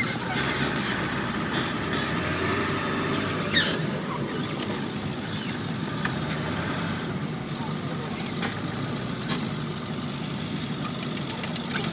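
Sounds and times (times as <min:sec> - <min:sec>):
truck engine and road noise: 0:00.0 - 0:11.9.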